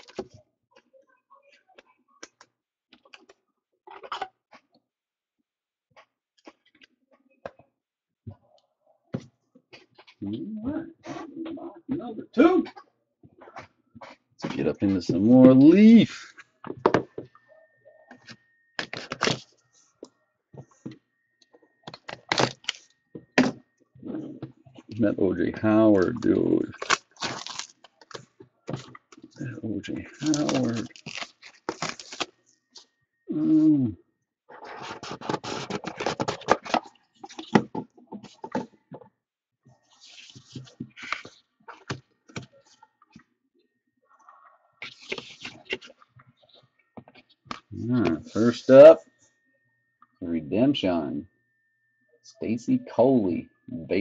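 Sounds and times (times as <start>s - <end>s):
wrapper rustling: 26.7s - 28.3s, 30.1s - 32.3s.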